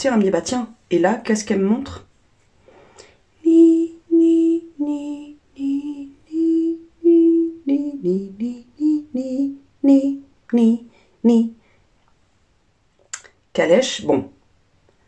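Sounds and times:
woman humming a slow tune: 0:03.4 - 0:11.5.

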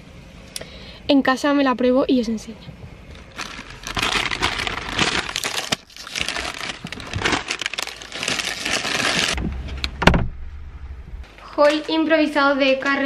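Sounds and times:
plastic bags rustling: 0:03.1 - 0:09.4.

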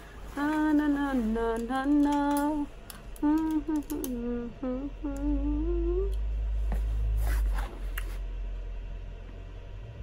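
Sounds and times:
woman humming: 0:00.4 - 0:06.3.

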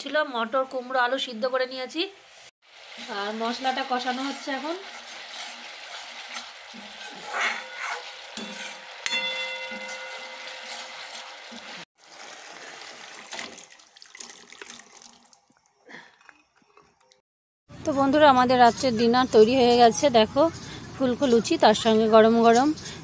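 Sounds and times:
paste sizzling in a pan: 0:02.6 - 0:13.4
spatula stirring: 0:03.5 - 0:11.8.

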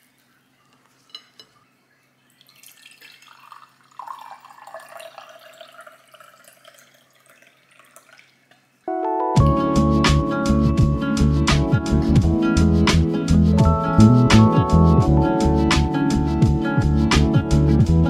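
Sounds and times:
water pouring into a glass: 0:02.2 - 0:08.7
guitar background music: 0:08.9 - 0:18.0.

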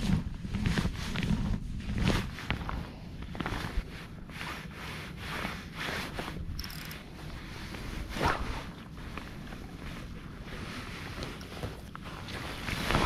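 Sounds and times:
fly line rasping through rod guides: 0:06.0 - 0:07.4.

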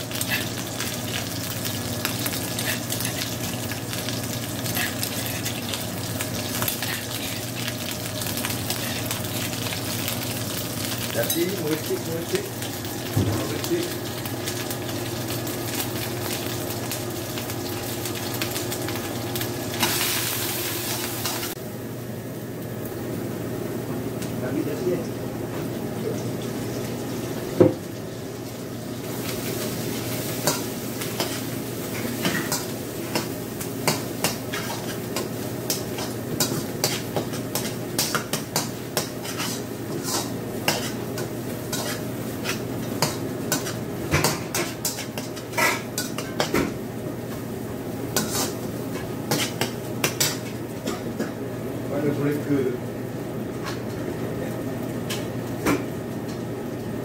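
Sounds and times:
paste sizzling in hot oil: 0:28.6 - 0:46.5
metal spatula scraping wok: 0:39.2 - 0:41.0.

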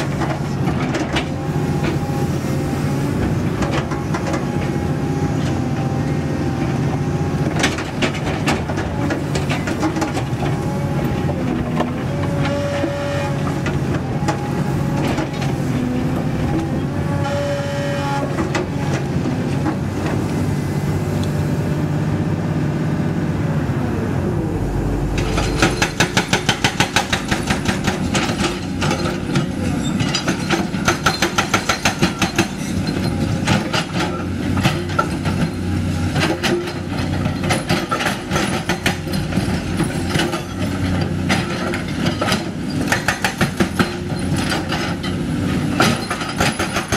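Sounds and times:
diesel engine running: 0:00.0 - 0:46.9
hydraulic whine: 0:23.4 - 0:30.0
hydraulic breaker hammering rock: 0:25.2 - 0:35.6, 0:36.2 - 0:46.9.

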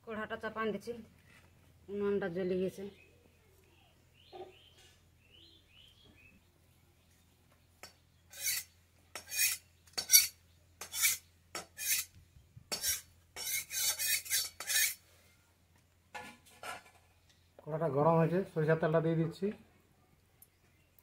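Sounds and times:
rasping scrapes: 0:08.3 - 0:12.1, 0:12.7 - 0:15.0.

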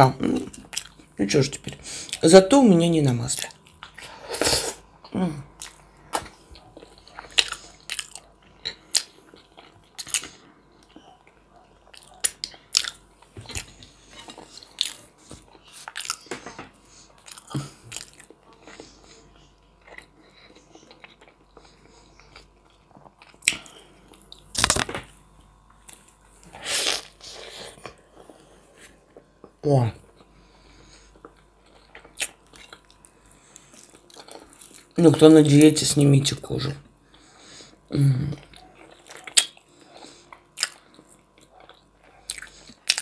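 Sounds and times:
chewing and biting: 0:05.6 - 0:16.4, 0:17.1 - 0:24.8, 0:31.1 - 0:35.0, 0:38.3 - 0:43.0.

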